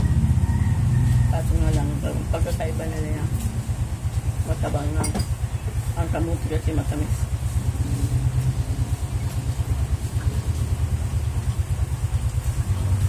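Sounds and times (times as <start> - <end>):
fluttering low rumble: 5.4 - 13.0.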